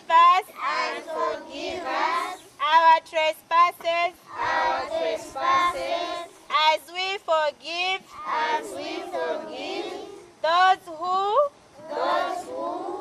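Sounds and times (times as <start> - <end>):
children singing in chorus: 0.6 - 2.4, 4.3 - 6.3, 8.2 - 10.2, 11.8 - 13.0.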